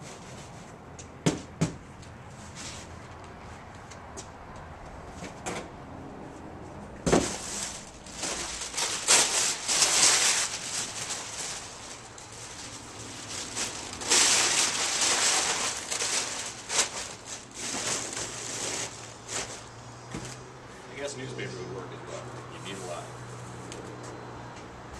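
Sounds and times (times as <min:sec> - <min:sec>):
cardboard thump: 0:07.0 - 0:07.4
packing paper crumpling: 0:07.2 - 0:19.8.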